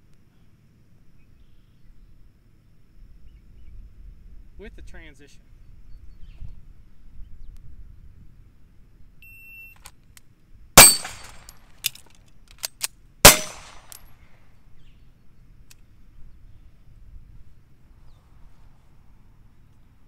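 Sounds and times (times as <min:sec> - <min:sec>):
short steady beep: 0:09.2 - 0:09.8
pistol shots: 0:10.8 - 0:11.5, 0:13.3 - 0:14.1
magazine reload clicks: 0:10.8 - 0:14.1.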